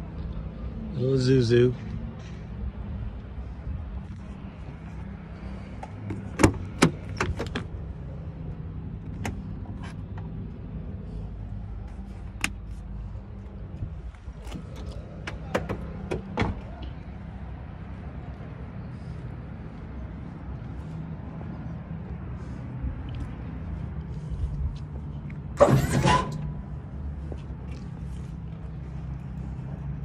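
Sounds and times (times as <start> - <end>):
truck door latch clicks: 6.1 - 7.7, 14.4 - 16.6.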